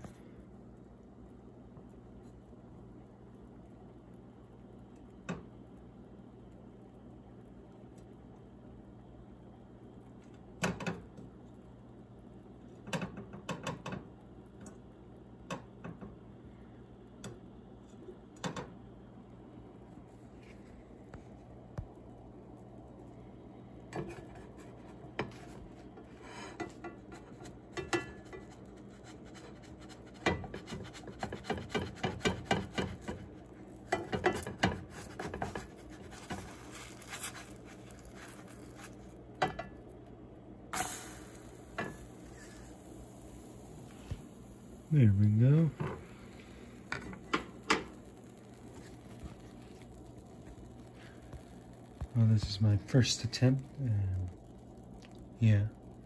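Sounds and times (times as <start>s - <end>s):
faint steady hum: 0.0s - 56.0s
spatula scraping a frying pan: 24.0s - 33.3s, 33.9s - 39.0s.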